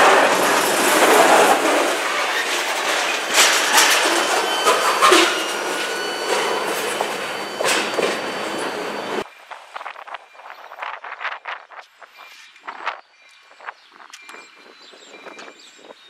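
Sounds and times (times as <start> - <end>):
wheels clanking over rail joints: 0.0 - 9.2
freight train rolling past: 0.0 - 9.3
faint wheel squeal: 2.0 - 9.2.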